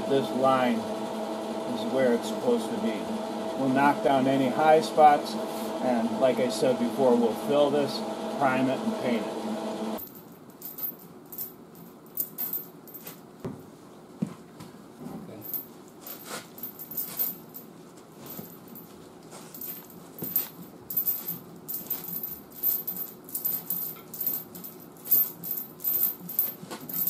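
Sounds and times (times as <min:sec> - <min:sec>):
metallic chain clinks: 0:10.0 - 0:13.2, 0:15.4 - 0:18.9, 0:19.5 - 0:27.0.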